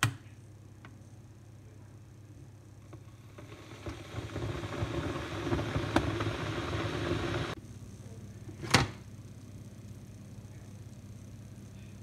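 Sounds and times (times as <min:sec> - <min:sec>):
electric kettle heating water: 0:02.1 - 0:07.6.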